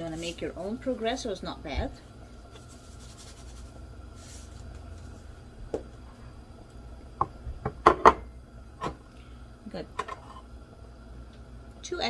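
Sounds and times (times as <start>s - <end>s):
breadcrumbs rustling in a bowl: 0.0s - 1.6s, 2.3s - 5.4s
low steady hum: 0.0s - 12.0s.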